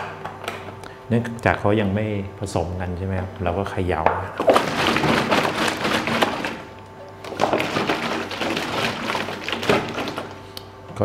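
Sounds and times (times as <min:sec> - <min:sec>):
water sloshing in plastic bottle: 0:04.4 - 0:10.4.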